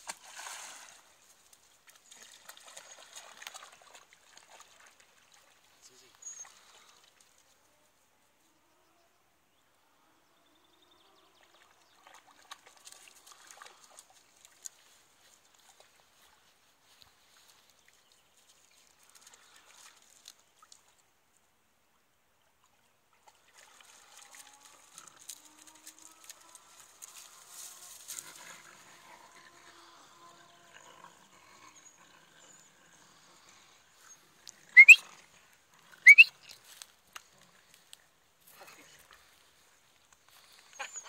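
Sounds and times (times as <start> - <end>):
scuffling in dry grass: 25.7 - 28.4
puppy yelps: 34.8 - 35.0, 36.0 - 36.3.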